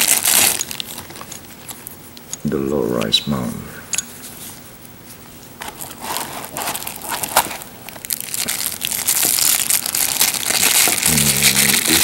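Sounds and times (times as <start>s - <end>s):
plastic bag crinkling: 0.0s - 1.8s, 5.6s - 12.0s.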